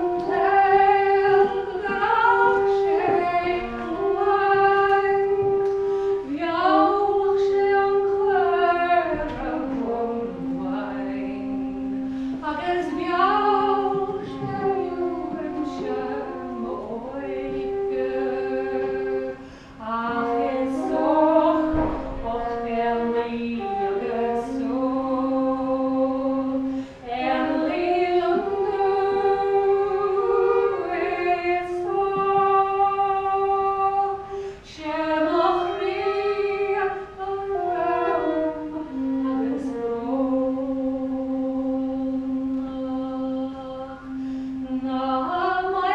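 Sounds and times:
woman singing: 0:00.0 - 0:45.9
wooden flute playing: 0:00.0 - 0:45.9.

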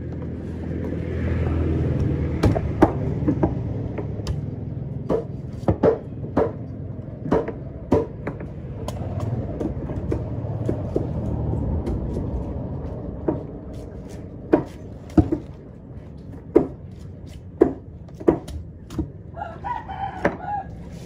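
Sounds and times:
cleaver chopping on wooden block: 0:05.0 - 0:06.6, 0:07.2 - 0:11.0, 0:17.6 - 0:19.1
low rumble: 0:06.8 - 0:16.4.

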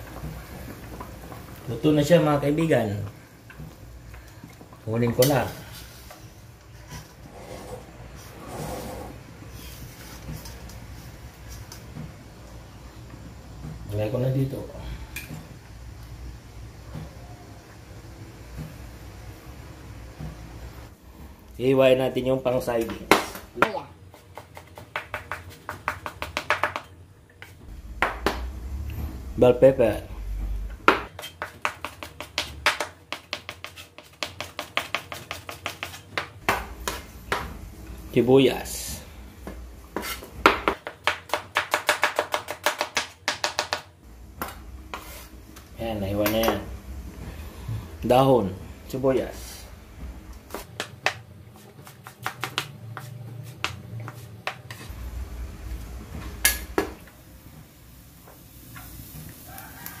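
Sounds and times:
knife chopping on cutting board: 0:30.9 - 0:37.5, 0:51.8 - 0:54.8.

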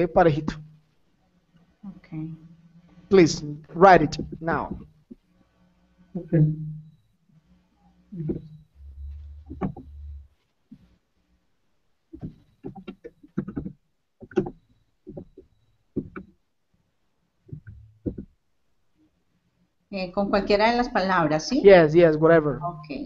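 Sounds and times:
low rumble: 0:08.2 - 0:10.3
computer keyboard typing: 0:12.2 - 0:15.4.

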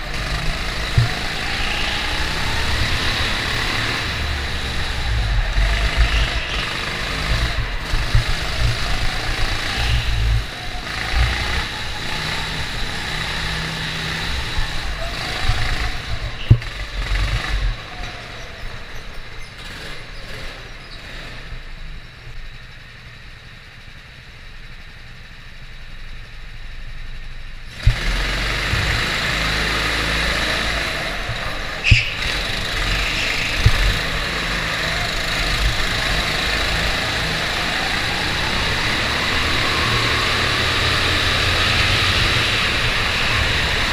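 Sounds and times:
go-kart engine running: 0:00.0 - 0:43.9
sharp knocks from kart: 0:31.8 - 0:32.4.

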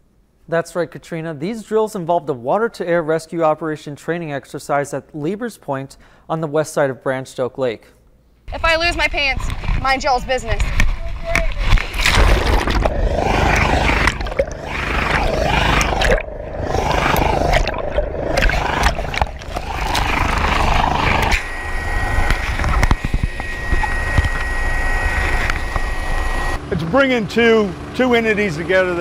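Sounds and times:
high steady whine: 0:08.5 - 0:29.0
water churning and splashing: 0:10.7 - 0:26.8
helicopter cabin drone: 0:12.8 - 0:29.0.

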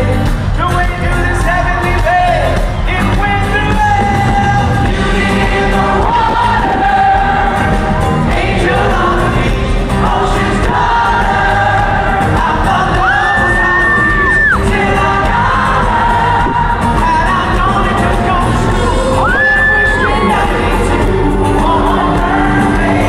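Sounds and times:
lead singer singing: 0:00.0 - 0:23.0
live pop-rock band playing: 0:00.0 - 0:23.0
group of women singing along: 0:04.9 - 0:23.0.

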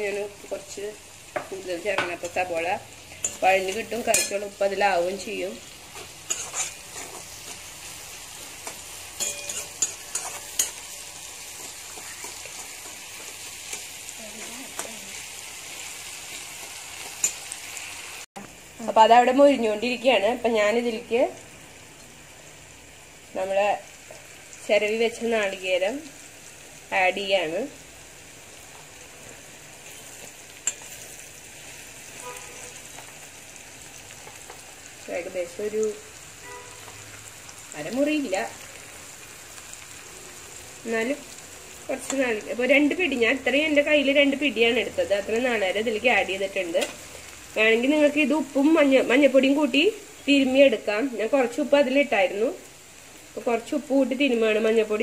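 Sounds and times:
onions sizzling in oil: 0:00.0 - 0:55.0
spatula scraping a pan: 0:05.9 - 0:15.2.

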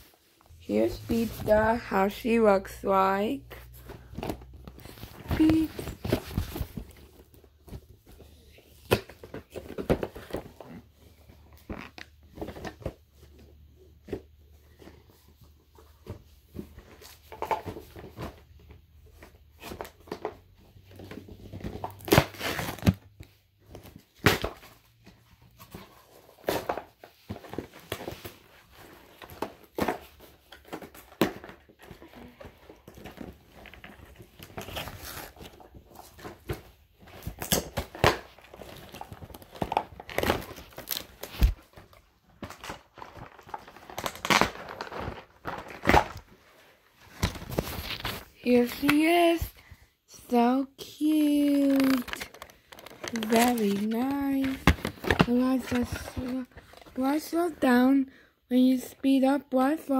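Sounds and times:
plastic and card crinkling: 0:00.0 - 0:13.0, 0:25.5 - 0:57.6
clicks and rustles: 0:51.0 - 0:57.1.

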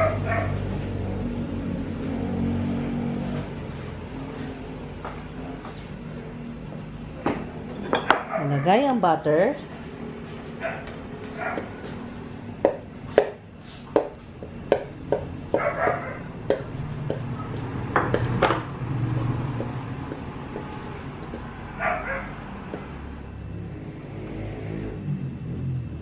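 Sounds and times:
dog barking: 0:00.0 - 0:00.7, 0:08.2 - 0:08.8, 0:10.6 - 0:11.8, 0:15.5 - 0:16.3, 0:21.8 - 0:22.4.

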